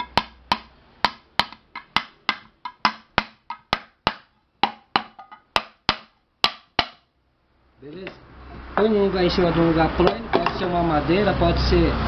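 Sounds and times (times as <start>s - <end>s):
hammer knocking on wooden block: 0.0s - 7.1s.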